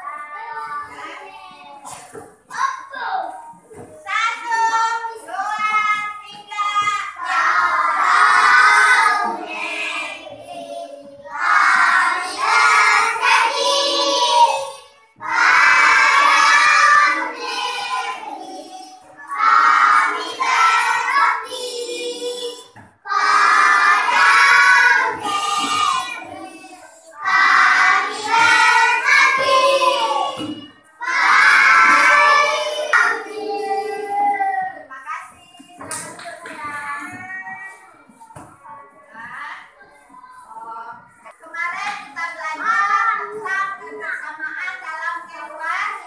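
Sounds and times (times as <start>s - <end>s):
children singing in unison: 7.2s - 34.7s.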